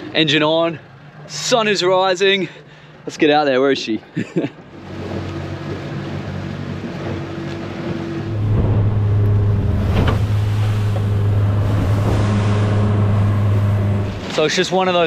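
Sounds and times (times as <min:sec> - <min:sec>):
boat engine running: 0:04.6 - 0:15.0.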